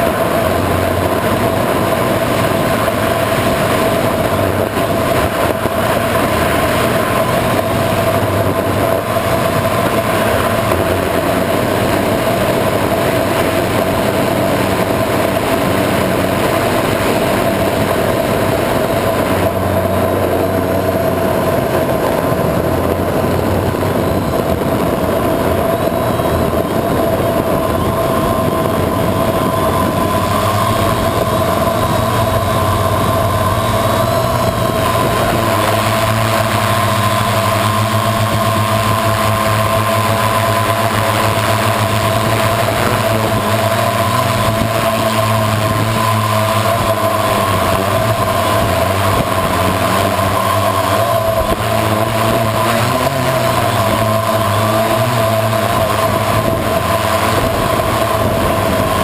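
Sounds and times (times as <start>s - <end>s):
drone propellers whining: 0.0s - 59.0s
rushing air: 0.0s - 59.0s.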